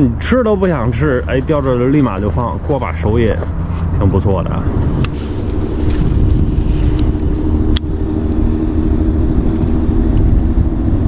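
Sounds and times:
road traffic rumble: 0:00.0 - 0:11.0.

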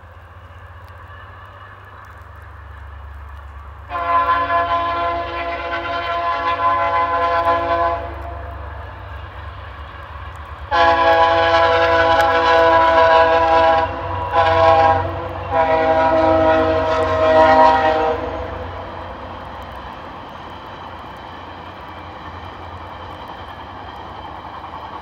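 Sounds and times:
train rumbling: 0:00.0 - 0:25.0
train air horn blasts: 0:03.9 - 0:08.8, 0:10.7 - 0:18.8.

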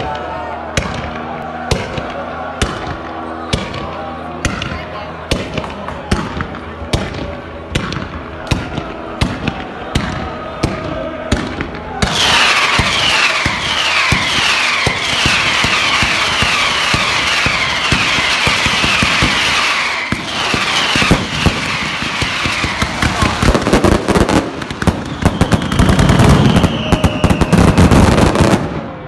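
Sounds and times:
pyrotechnic bangs: 0:00.7 - 0:29.0
falling whistles: 0:12.1 - 0:22.8, 0:24.9 - 0:27.9.

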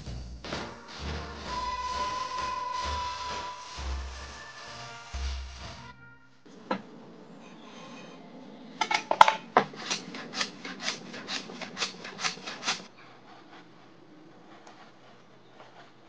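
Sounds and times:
hand tool scraping wood: 0:08.8 - 0:16.0.

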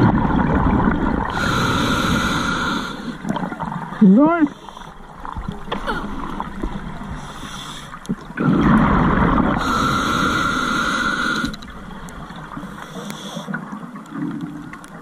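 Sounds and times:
regulator bubbling underwater: 0:00.0 - 0:04.4, 0:08.0 - 0:12.8
low water noise: 0:00.0 - 0:15.0
regulator hiss: 0:01.3 - 0:03.2.

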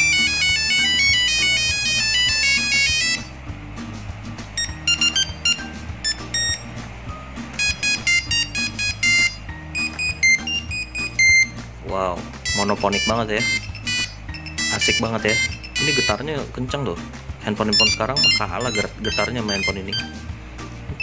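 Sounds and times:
monophonic phone ringtones: 0:00.0 - 0:03.3, 0:04.6 - 0:06.7, 0:07.6 - 0:11.6, 0:12.4 - 0:16.3, 0:17.7 - 0:20.2.

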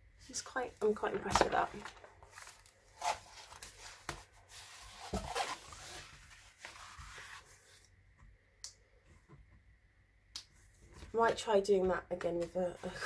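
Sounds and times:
plastic film rustling and crinkling: 0:00.9 - 0:07.8.

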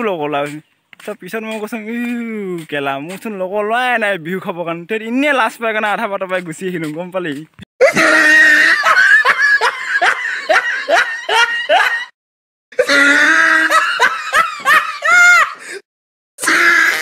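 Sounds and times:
person laughing hard: 0:07.8 - 0:12.2, 0:12.8 - 0:15.8.

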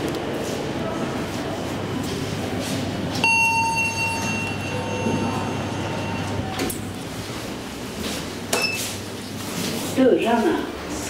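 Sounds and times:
steady electronic beep: 0:03.2 - 0:06.5.

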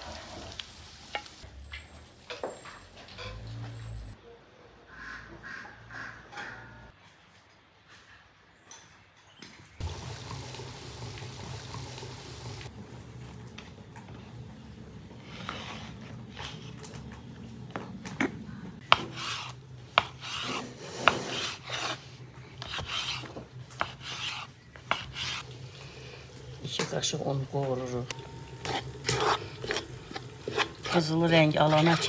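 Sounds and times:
knife sawing through bread crust: 0:15.2 - 0:16.8, 0:18.8 - 0:25.4, 0:28.6 - 0:32.0.

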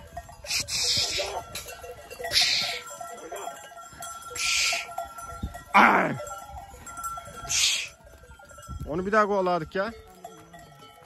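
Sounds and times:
goat bells clinking: 0:00.0 - 0:11.0
person making hissing calls: 0:00.5 - 0:01.4, 0:02.3 - 0:02.8, 0:04.4 - 0:04.9, 0:07.5 - 0:07.9.

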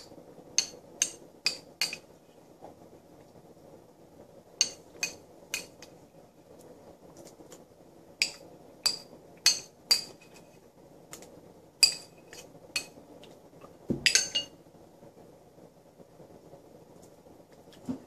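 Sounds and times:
spoon clinking against bowl: 0:08.2 - 0:10.2, 0:11.8 - 0:13.0, 0:14.0 - 0:14.6.

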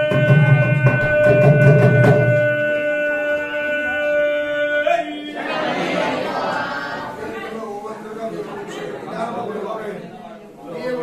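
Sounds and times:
drum beats: 0:00.0 - 0:03.0.

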